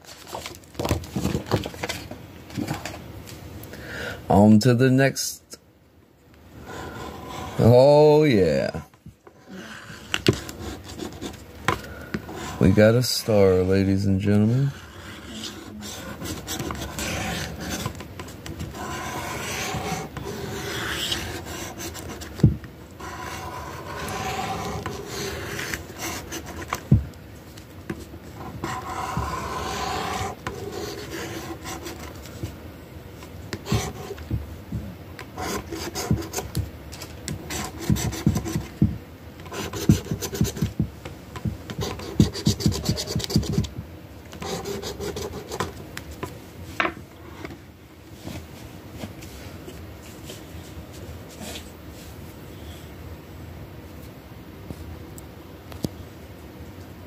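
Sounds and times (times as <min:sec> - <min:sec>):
scratching lottery ticket: 0:14.6 - 0:18.0, 0:18.6 - 0:22.4, 0:23.0 - 0:26.8, 0:28.4 - 0:32.2, 0:39.5 - 0:40.8, 0:41.7 - 0:43.7.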